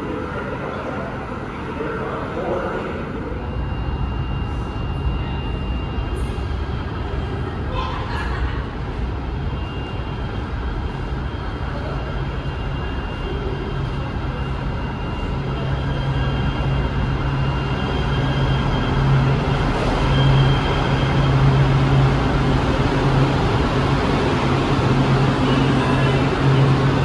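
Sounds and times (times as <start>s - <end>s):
light rail train running: 0.0s - 27.0s.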